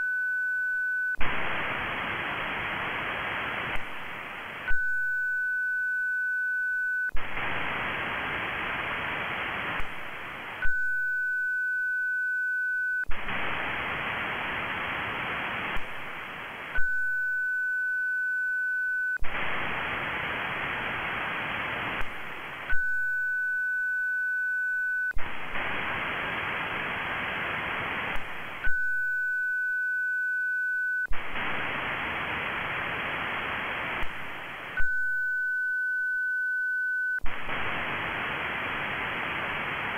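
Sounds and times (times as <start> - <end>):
receiver hiss: 0.0 - 39.9
whistle-like transmit tone: 28.7 - 31.1.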